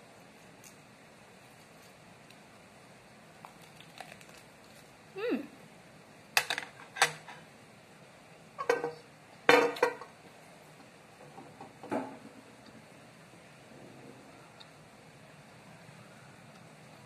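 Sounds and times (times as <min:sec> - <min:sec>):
lettuce crunching while chewed: 0:03.4 - 0:04.9.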